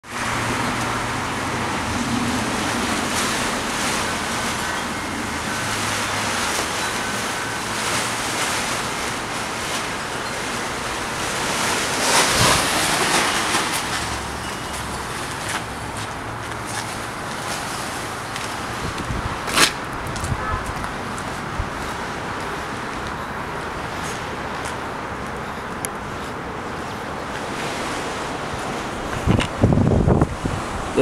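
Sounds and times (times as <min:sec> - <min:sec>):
strong gusting wind: 0:00.0 - 0:31.0
plastic tarp flapping: 0:01.5 - 0:19.8.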